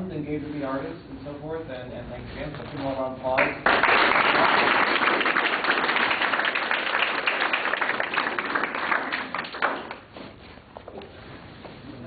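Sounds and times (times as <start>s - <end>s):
audience applauding: 3.4s - 10.1s.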